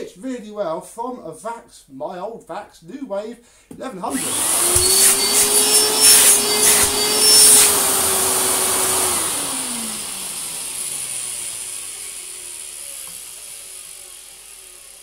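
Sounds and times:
vacuum cleaner motor whine: 4.1 - 15.0.

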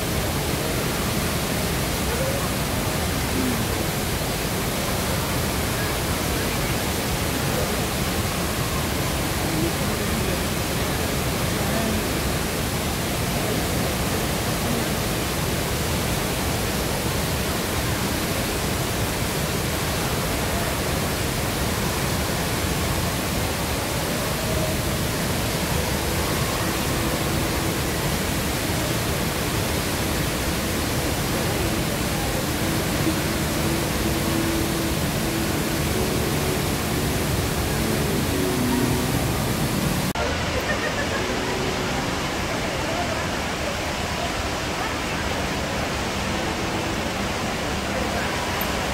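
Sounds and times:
indoor waterfall rushing: 0.0 - 48.9.

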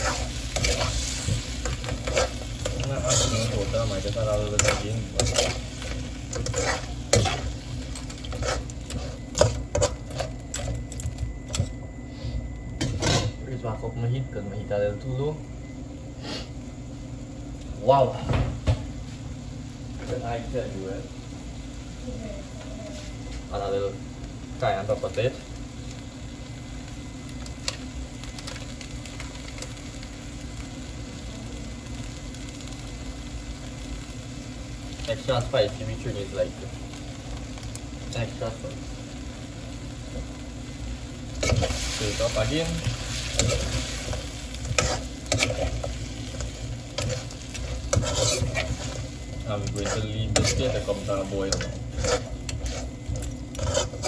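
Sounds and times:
metal spatula scraping a wok: 0.0 - 4.0, 4.6 - 10.3, 43.1 - 54.0
light sizzle: 0.0 - 54.0
steady low hum: 0.0 - 54.0
crackles and pops: 26.8 - 34.0, 36.8 - 38.3.

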